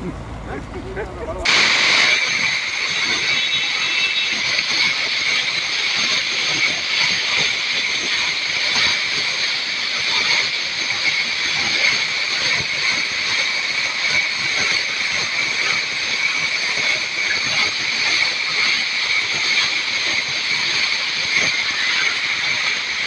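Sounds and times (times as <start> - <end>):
river whitewater roaring: 0.1 - 8.2.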